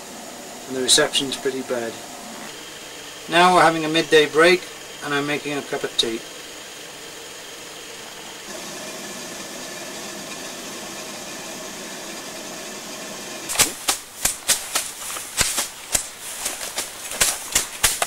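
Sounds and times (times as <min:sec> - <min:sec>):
gas stove burner hissing: 0:00.0 - 0:18.0
hand tools cutting long grass: 0:13.5 - 0:18.0.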